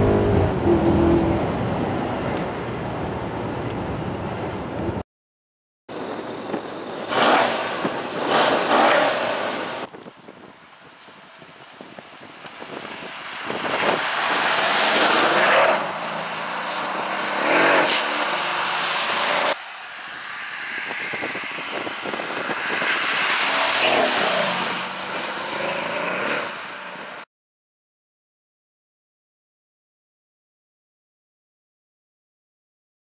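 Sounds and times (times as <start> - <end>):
car engine accelerating: 0.0 - 2.7
tyres hissing on wet road: 6.0 - 9.9, 10.8 - 27.2.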